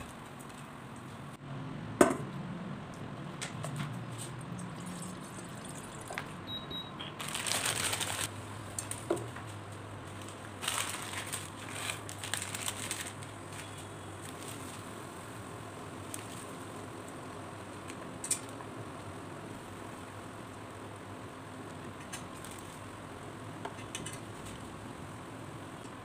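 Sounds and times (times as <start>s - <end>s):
short electronic beep: 6.4s - 7.2s
rustling: 7.2s - 14.9s.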